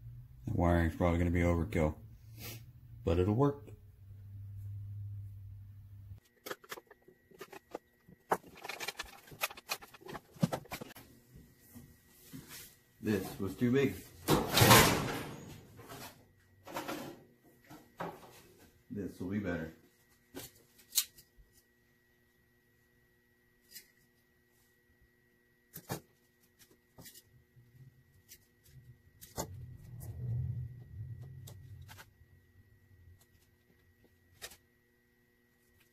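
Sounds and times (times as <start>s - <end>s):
low steady hum: 0.0s - 35.9s
electrical cord being handled: 6.3s - 10.9s.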